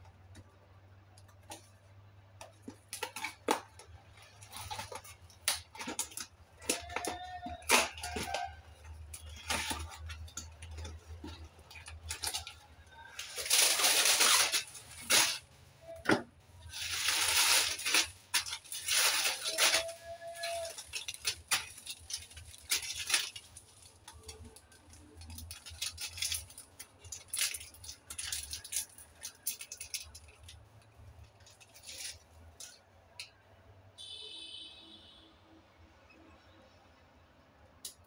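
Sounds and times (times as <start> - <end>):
plastic packets crinkling: 1.3 - 32.8
packets rustling onto countertop: 16.6 - 24.6.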